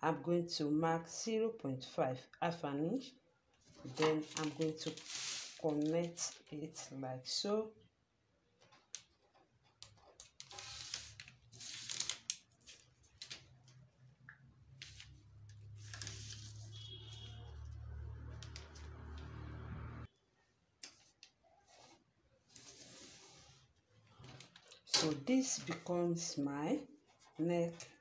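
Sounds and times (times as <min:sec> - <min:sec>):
paper rustling: 0:03.6 - 0:06.6, 0:08.7 - 0:13.9, 0:14.8 - 0:19.2.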